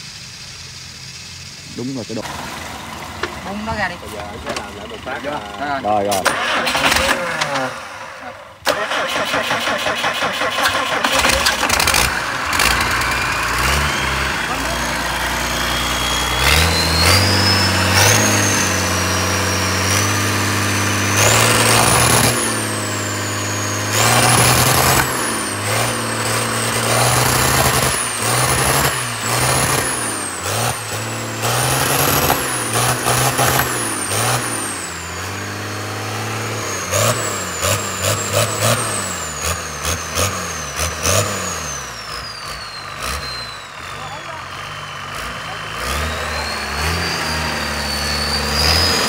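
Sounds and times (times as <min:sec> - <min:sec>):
diesel engine revving: 0:00.0 - 0:49.0
high engine whine: 0:00.0 - 0:49.0.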